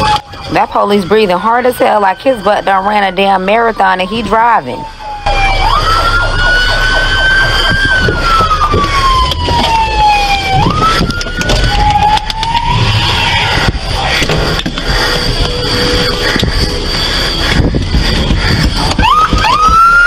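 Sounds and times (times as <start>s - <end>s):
police siren wailing: 0.0s - 20.0s
idling traffic rumble: 0.1s - 20.0s.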